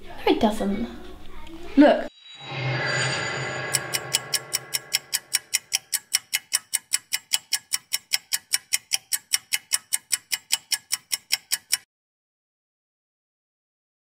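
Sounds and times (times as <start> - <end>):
pocket watch ticking: 3.7 - 11.9.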